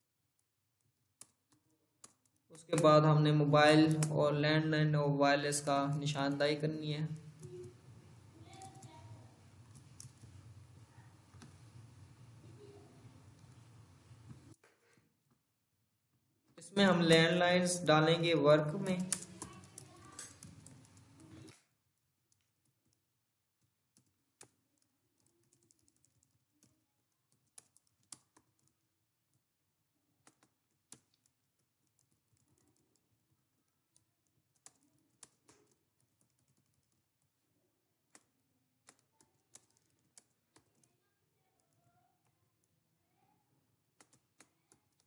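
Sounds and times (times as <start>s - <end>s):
faint keyboard keystrokes: 8.4s - 9.0s, 18.8s - 21.7s, 33.9s - 37.0s.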